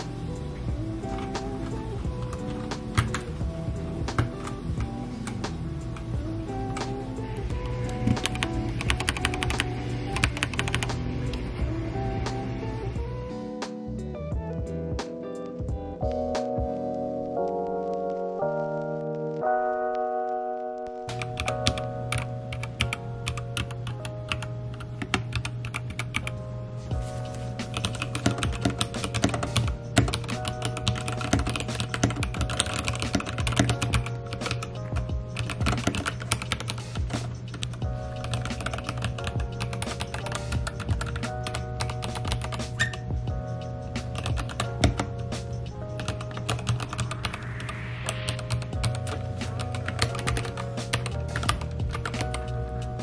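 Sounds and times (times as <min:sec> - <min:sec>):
background music: 0:00.0 - 0:53.0
typing on mechanical keyboard: 0:02.2 - 0:03.3, 0:07.7 - 0:10.9, 0:21.1 - 0:26.3, 0:27.7 - 0:43.0, 0:44.2 - 0:45.1, 0:46.0 - 0:47.2, 0:48.4 - 0:52.5.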